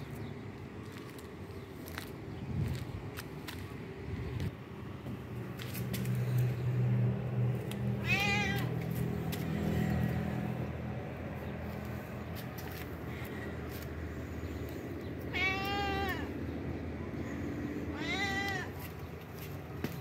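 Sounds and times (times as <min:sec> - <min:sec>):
cat meowing: 0:08.0 - 0:08.8, 0:15.3 - 0:16.3, 0:17.9 - 0:18.7.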